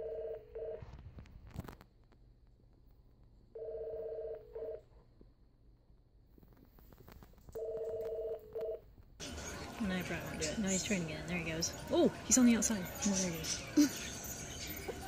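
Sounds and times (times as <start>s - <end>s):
electronic telephone ringing: 0.0s - 0.8s, 3.6s - 4.8s, 7.6s - 8.8s.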